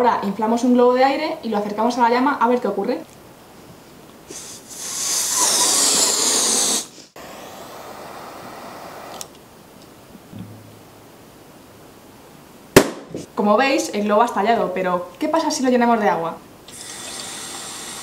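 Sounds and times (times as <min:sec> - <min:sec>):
quiet steady hiss: 0:00.0 - 0:04.8, 0:06.9 - 0:18.0
person blowing into balloon: 0:04.3 - 0:09.2, 0:16.7 - 0:18.0.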